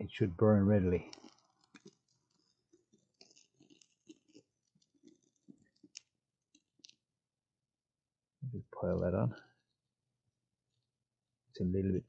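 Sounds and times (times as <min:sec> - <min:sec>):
kindling crackling: 0:00.1 - 0:07.1.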